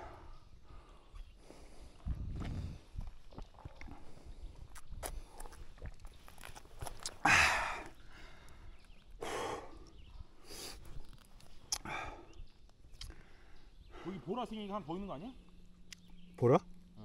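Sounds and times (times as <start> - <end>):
heavy breathing: 0.0 - 3.0, 7.2 - 11.0, 11.8 - 12.4, 13.1 - 14.4.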